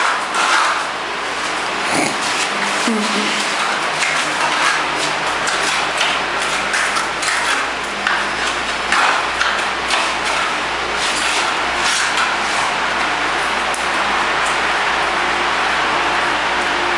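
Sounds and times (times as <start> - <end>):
hand tool scraping metal frame: 0.0 - 12.8.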